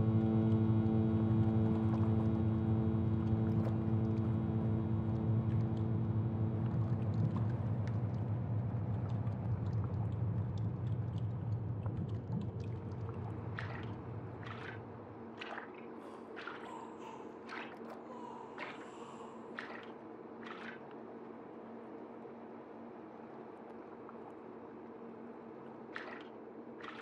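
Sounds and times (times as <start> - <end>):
low ambient drone: 0.0 - 20.9
water drips: 3.2 - 4.4, 5.0 - 21.2, 25.6 - 27.0.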